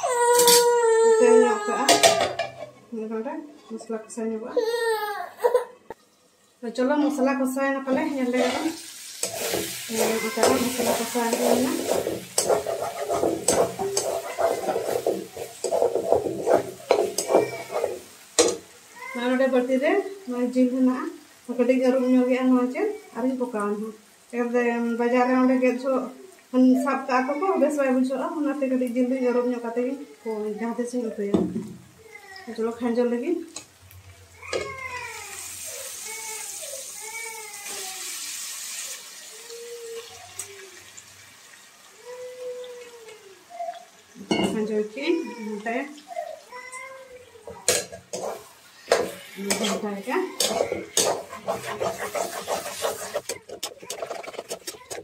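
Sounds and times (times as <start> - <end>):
paste frying: 7.0 - 29.9, 30.6 - 55.0
chicken sizzling in hot oil: 7.9 - 30.0, 32.6 - 46.4, 47.1 - 55.0
metal spatula scraping pan: 8.0 - 18.7, 47.6 - 55.0
spatula knocking pan: 9.2 - 18.7, 47.5 - 55.0.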